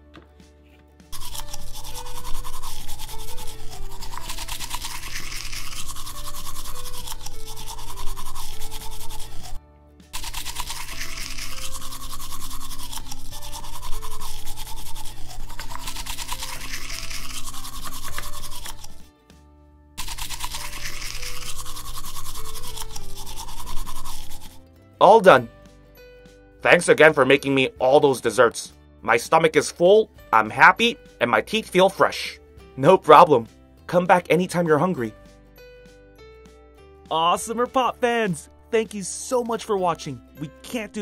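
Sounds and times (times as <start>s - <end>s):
background music: 0.0s - 41.0s
toy toothbrush scrubbing: 1.1s - 19.1s, 20.0s - 24.6s.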